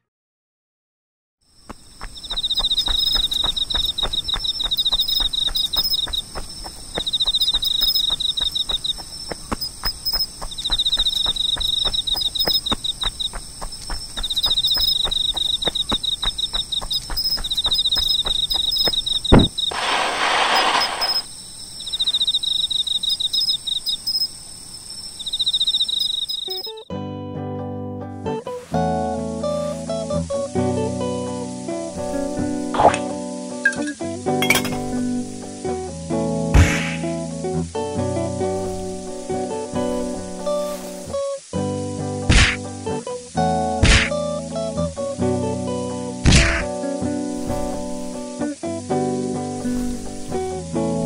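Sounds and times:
cricket pulsed trill: 0:01.4 - 0:26.9, 0:29.3 - 0:37.2, 0:38.4 - 0:51.0
high-pitched insect buzz: 0:01.5 - 0:26.8, 0:28.5 - 0:35.9, 0:38.3 - 0:51.0
running footsteps: 0:01.6 - 0:21.3, 0:38.5 - 0:41.2, 0:47.3 - 0:48.4, 0:49.6 - 0:50.6
thump: 0:19.3 - 0:19.6
short rushing noise: 0:19.3 - 0:21.3.

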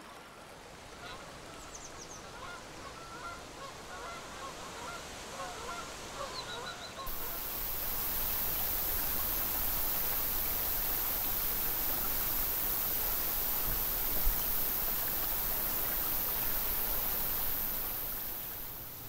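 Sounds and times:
river water rushing: 0:07.1 - 0:19.0.

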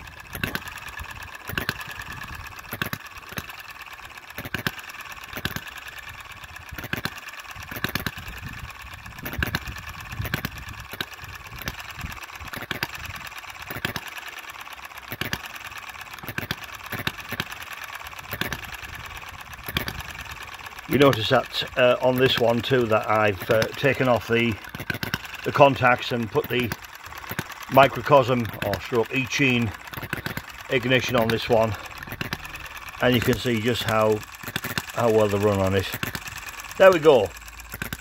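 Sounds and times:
light mechanical clatter: 0:00.0 - 0:38.0.

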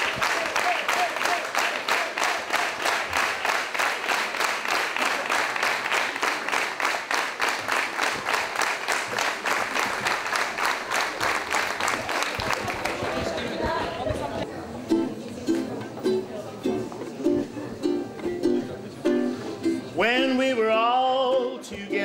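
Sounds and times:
crowd clapping in rhythm: 0:00.0 - 0:14.5.

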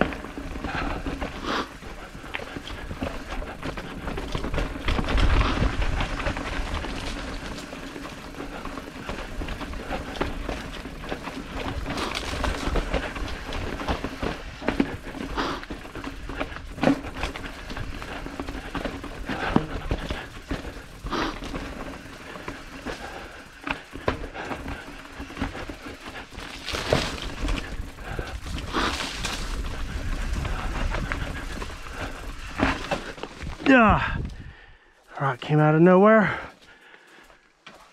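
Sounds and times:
bike knocking and rattling: 0:00.0 - 0:34.5
bike tyre noise: 0:00.0 - 0:35.2
wind buffeting microphone: 0:27.3 - 0:34.7.

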